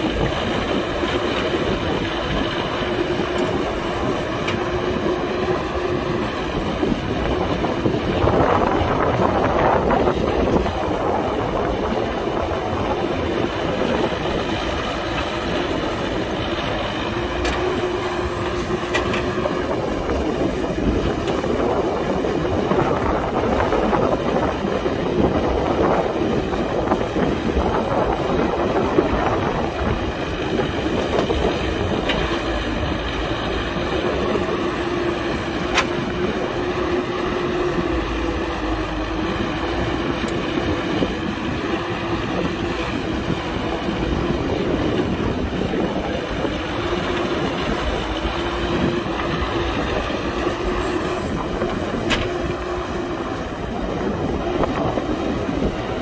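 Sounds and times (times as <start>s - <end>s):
excavator engine and hydraulics: 0.0s - 56.0s.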